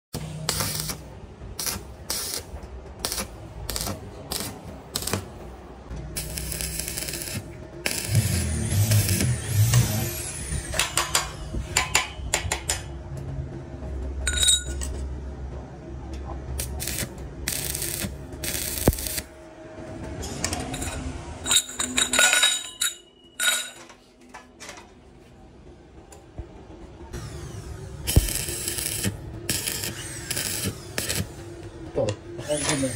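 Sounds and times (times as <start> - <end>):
welding arc crackling: 0.2 - 5.3, 6.1 - 10.6, 16.6 - 19.3, 28.1 - 31.4
steel tubes clinking: 14.2 - 15.0, 20.7 - 24.4.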